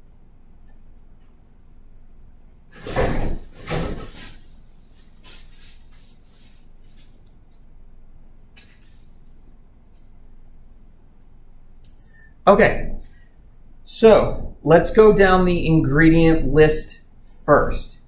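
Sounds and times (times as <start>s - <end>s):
hands rubbing and rustling: 4.0s - 7.6s, 8.6s - 10.1s.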